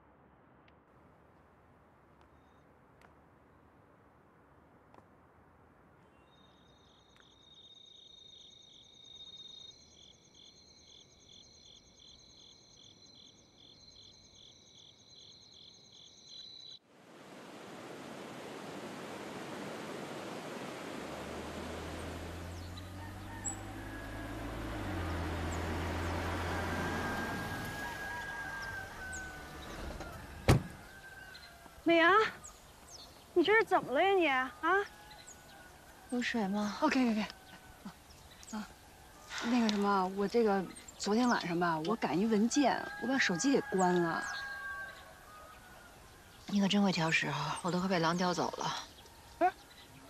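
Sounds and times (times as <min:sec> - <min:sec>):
insects chirring: 0:06.2 - 0:16.8
sea surf on rocky shore: 0:16.9 - 0:22.5.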